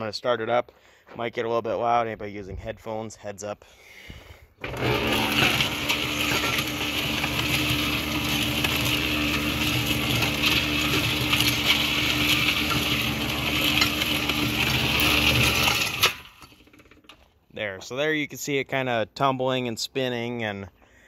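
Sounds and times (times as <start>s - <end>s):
motor hum: 4.6s - 17.2s.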